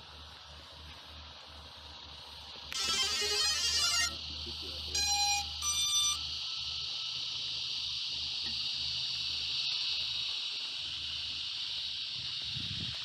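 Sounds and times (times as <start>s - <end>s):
drone motors and props hissing: 0.0s - 13.0s
short electronic beeps: 5.0s - 6.3s.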